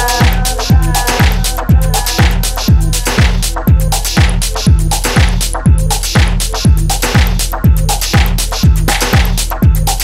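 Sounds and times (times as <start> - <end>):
hi-hats ticking: 0.0 - 10.0
kick drum beat: 0.0 - 10.0.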